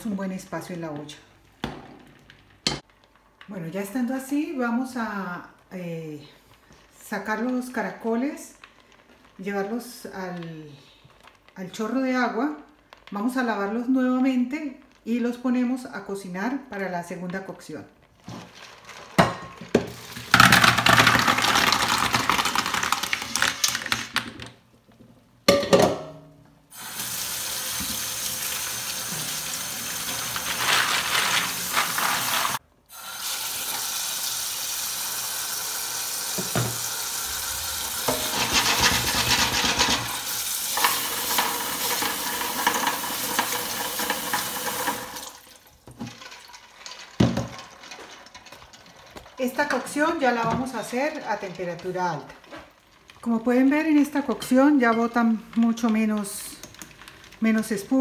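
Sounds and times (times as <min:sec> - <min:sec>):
water pouring into a colander: 0:26.8 - 0:48.4
kitchen tap running into pot: 0:26.8 - 0:49.2.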